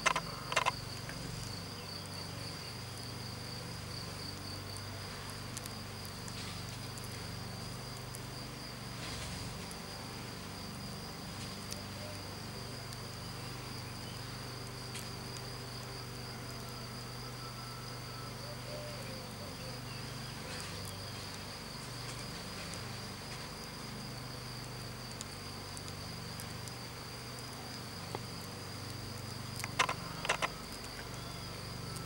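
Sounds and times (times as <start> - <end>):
sharp clicks: 0.0 - 0.8, 29.6 - 30.9
high-pitched insect trill: 0.0 - 5.0, 5.6 - 32.0
insect buzzing hum: 0.0 - 32.0.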